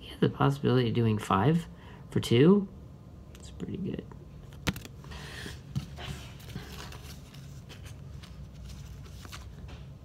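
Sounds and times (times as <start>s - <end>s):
cards rustling: 4.4s - 10.0s.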